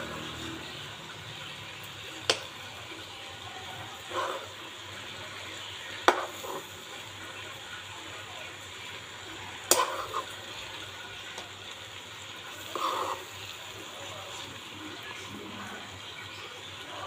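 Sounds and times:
gravy sizzling and bubbling: 0.0s - 17.0s
spatula clacking on pan: 2.3s - 2.5s, 6.0s - 6.7s, 9.6s - 10.4s
spatula stirring: 4.0s - 7.1s, 9.6s - 14.7s.

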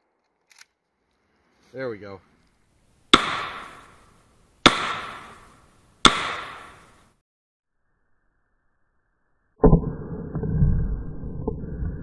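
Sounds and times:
rifle shots echoing: 3.1s - 7.1s.

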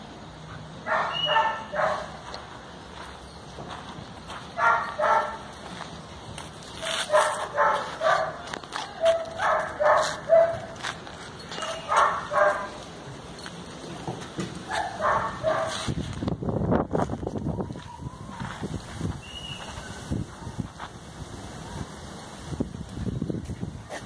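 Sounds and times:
dog barking: 0.8s - 2.1s, 4.6s - 5.4s, 6.8s - 8.4s, 9.0s - 10.8s, 11.6s - 12.8s, 14.7s - 15.8s.

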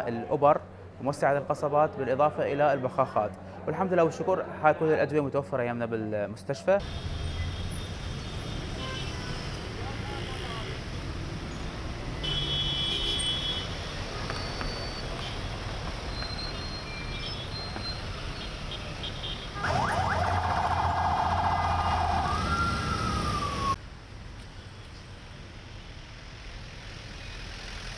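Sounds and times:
road traffic: 0.0s - 27.9s
emergency vehicle siren: 19.5s - 23.8s.

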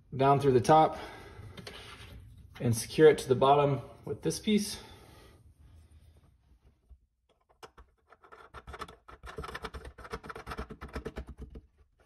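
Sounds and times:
nut scratching and clicking: 7.3s - 11.6s.

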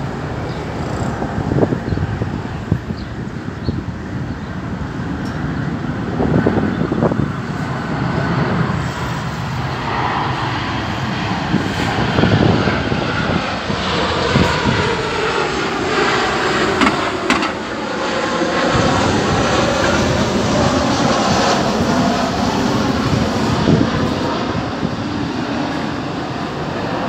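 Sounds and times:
jet engine rumble overhead: 0.0s - 27.0s.

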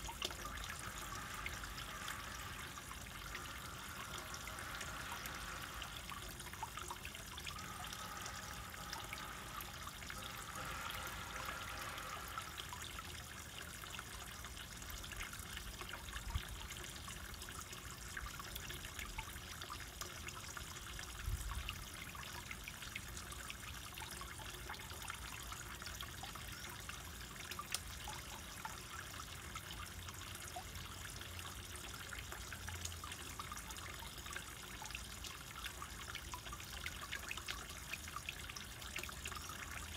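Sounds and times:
water trickling into pond: 0.0s - 39.9s.

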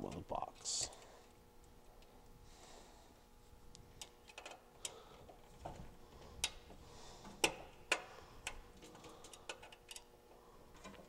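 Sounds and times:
clicks of wires and metal parts: 3.7s - 10.1s, 10.7s - 11.0s.

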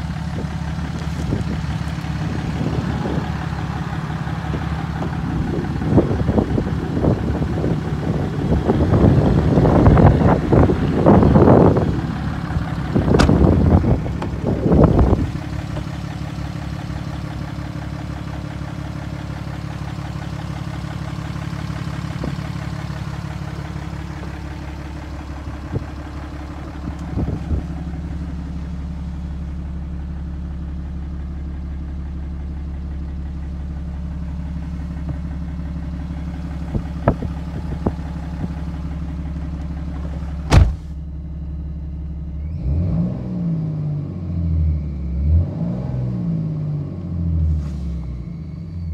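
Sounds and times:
diesel engine idling: 0.0s - 48.9s
handling bumps and rustling: 13.1s - 14.8s, 39.9s - 41.0s.

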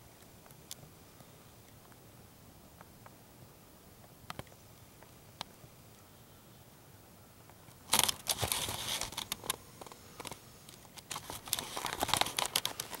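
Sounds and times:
camera handling noise: 7.9s - 13.0s.

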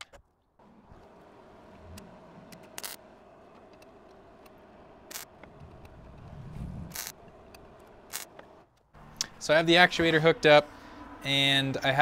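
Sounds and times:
welder arc hiss and hum: 5.0s - 5.4s, 6.6s - 7.2s.

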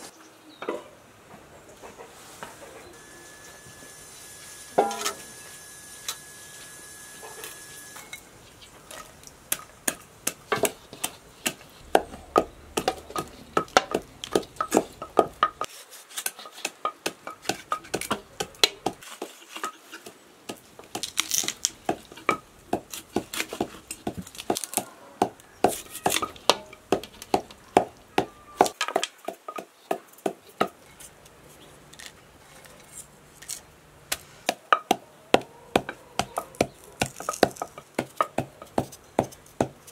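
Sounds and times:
wooden pestle pounding in mortar: 9.5s - 15.7s, 25.2s - 30.7s, 34.5s - 39.8s.

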